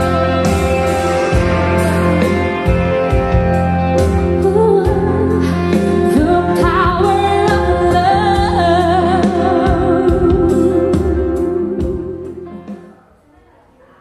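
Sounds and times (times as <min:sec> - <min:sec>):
steady bass: 0:00.0 - 0:12.9
drum beats: 0:00.0 - 0:13.0
person singing long notes: 0:04.3 - 0:12.9.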